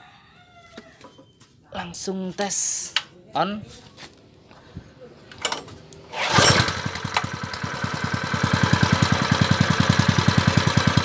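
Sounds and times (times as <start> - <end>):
small engine starting and running: 6.1 - 11.0.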